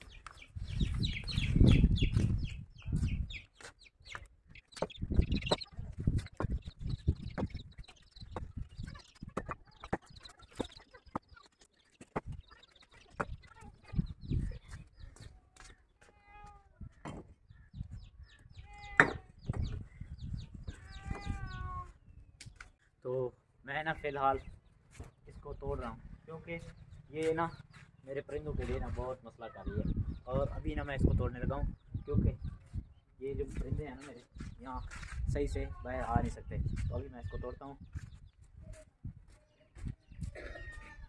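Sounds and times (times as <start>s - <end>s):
small birds chirping: 0.0s - 41.0s
chickens clucking: 0.1s - 15.6s.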